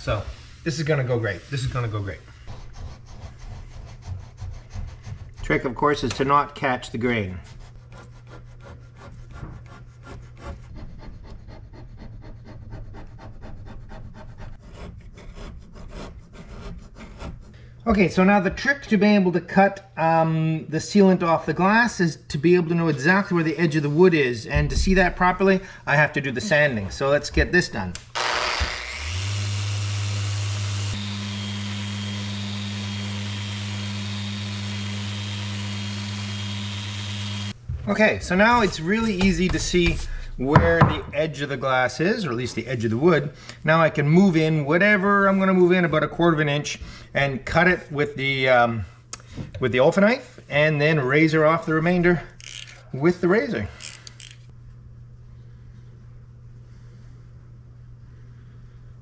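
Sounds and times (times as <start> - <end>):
razor blade scraping wood: 7.2 - 17.5
orbital sander motor hum: 28.2 - 37.6.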